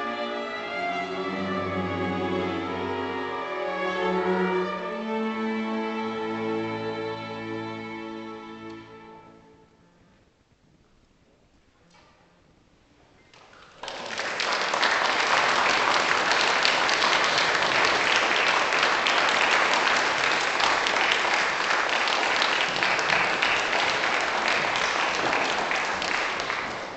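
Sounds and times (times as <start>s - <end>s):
audience applause: 13.5s - 26.9s.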